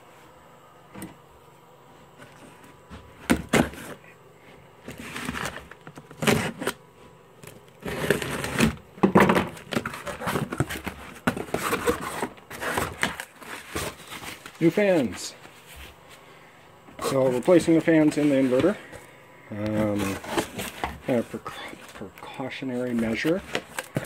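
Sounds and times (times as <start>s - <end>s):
cardboard ripping and scraping: 3.3s - 4.0s, 4.8s - 6.8s, 7.8s - 8.8s, 9.5s - 15.2s, 17.0s - 18.8s, 19.6s - 22.0s, 22.7s - 24.0s.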